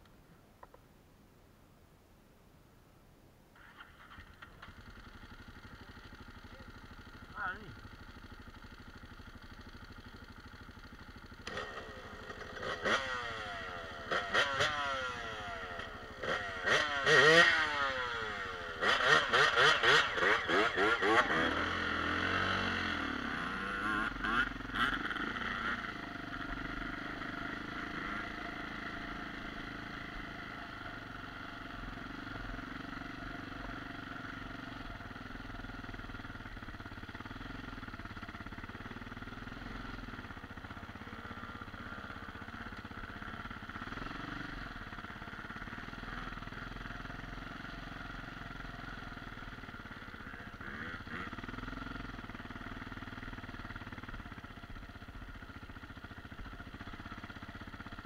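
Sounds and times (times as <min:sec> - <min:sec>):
motorcycle engine running: 0:03.6 - 0:58.0.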